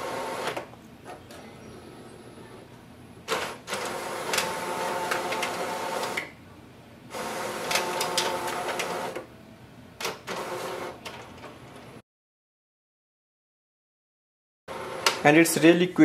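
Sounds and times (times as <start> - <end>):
document feeder motor whirring: 0.0 - 0.7, 3.3 - 6.3, 7.1 - 9.3.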